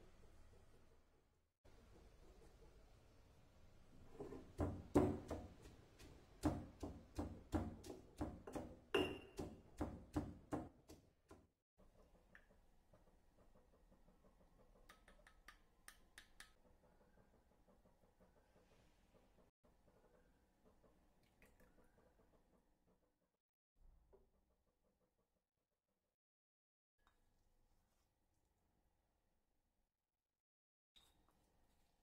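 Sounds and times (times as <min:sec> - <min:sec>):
stone pestle pounding in mortar: 0:04.5 - 0:10.8.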